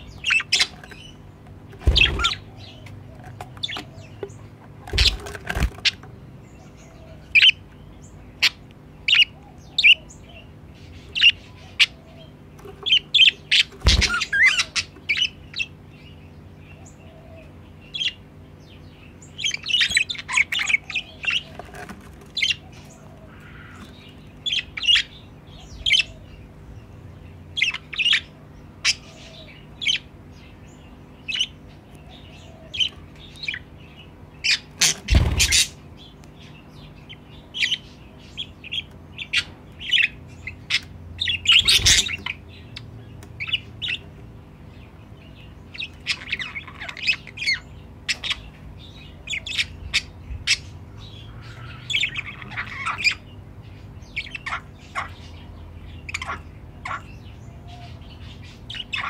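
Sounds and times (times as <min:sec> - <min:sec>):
budgerigars chirping and chattering: 0:00.0 - 0:59.0
faint steady hum: 0:00.0 - 0:59.0
loud thumps: 0:01.8 - 0:02.4.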